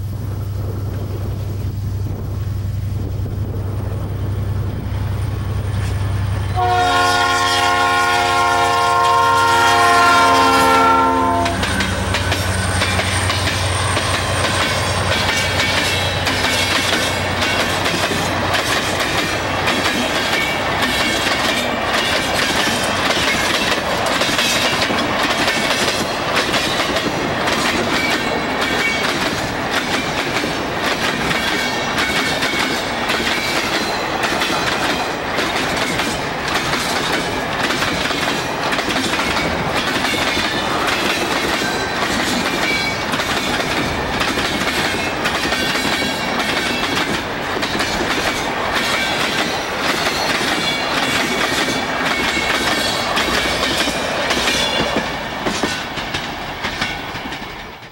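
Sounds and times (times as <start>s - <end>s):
train wheels clacking on rails: 3.4s - 57.9s
locomotive horn: 6.5s - 12.8s.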